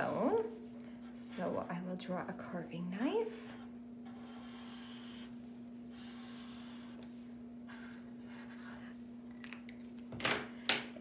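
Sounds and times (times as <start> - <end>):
marker scratching on paper: 3.4 - 8.8.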